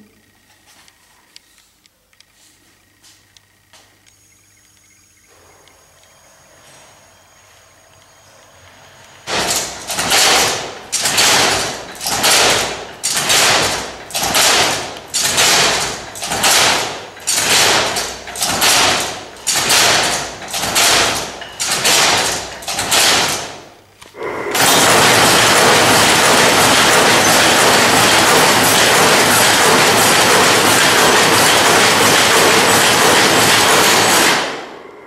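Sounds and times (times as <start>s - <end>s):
weaving machine clattering: 9.2s - 23.8s, 24.5s - 34.8s
hand-cranked loom strokes: 9.3s - 23.5s, 24.6s - 34.4s.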